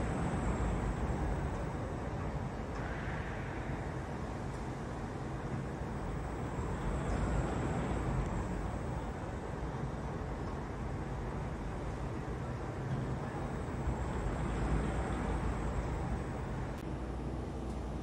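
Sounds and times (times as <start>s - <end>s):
faint high machine whine: 0.0s - 18.0s
low mechanical rumble: 0.0s - 18.0s.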